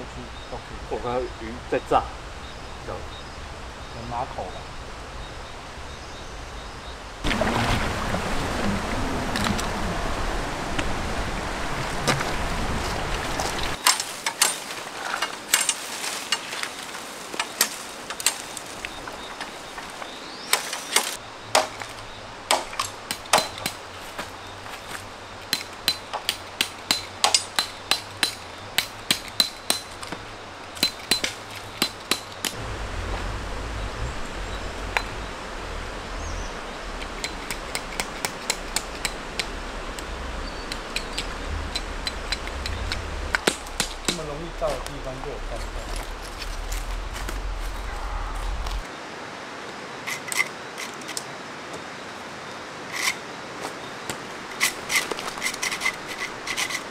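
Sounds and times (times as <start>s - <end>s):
tent stakes hammered into stony ground: 13.5s - 32.6s, 37.0s - 47.4s.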